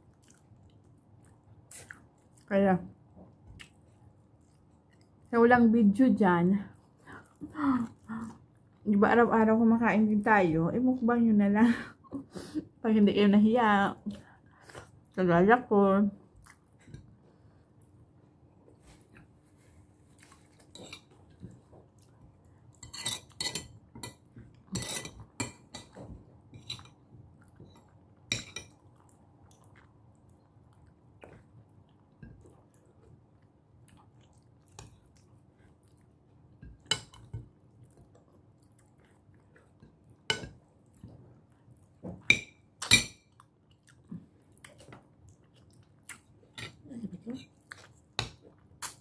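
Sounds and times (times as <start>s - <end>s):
chewing and lip smacks: 0.0s - 2.5s, 3.3s - 5.3s, 16.4s - 16.8s, 27.3s - 36.4s, 37.5s - 42.0s, 43.3s - 46.8s, 47.5s - 49.0s.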